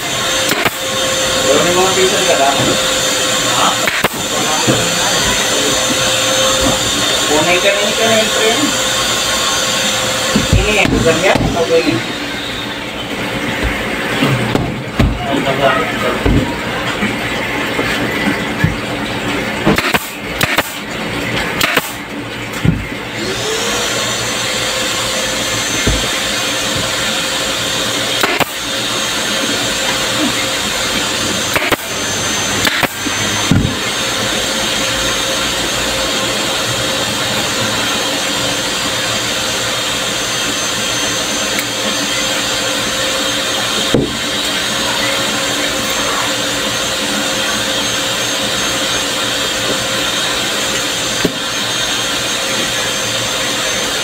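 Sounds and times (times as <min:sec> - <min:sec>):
electric motor whining and humming: 0:00.0 - 0:54.0
sharp clicks and knocks: 0:21.6 - 0:22.9.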